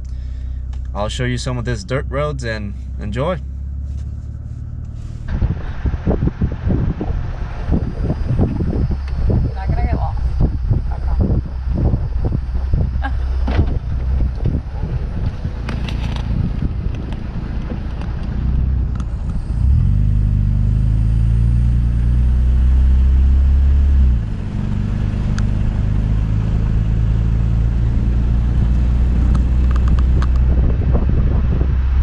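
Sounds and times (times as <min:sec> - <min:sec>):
pickup truck engine rumble: 0:00.0 - 0:32.0.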